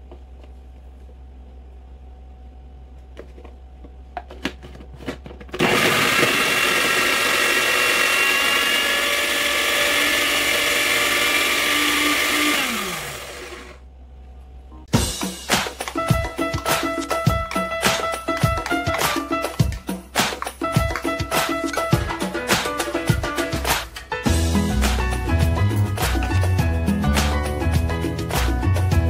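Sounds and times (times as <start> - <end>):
food processor motor chopping: 5.5 - 13.8.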